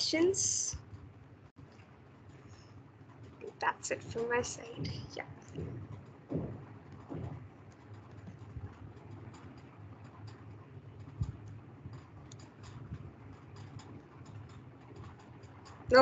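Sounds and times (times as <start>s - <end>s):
steady low hum: 0.0s - 16.0s
faint clicks and ticks: 0.6s - 16.0s
sharp thump: 5.6s - 7.4s.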